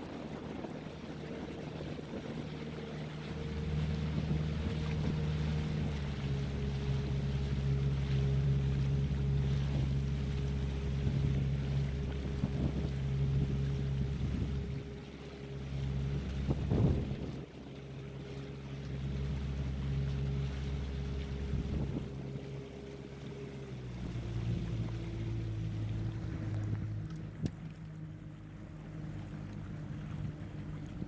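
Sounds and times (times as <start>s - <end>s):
wind buffeting microphone: 0.0s - 17.7s, 19.2s - 22.6s
motorboat engine humming: 0.0s - 31.0s.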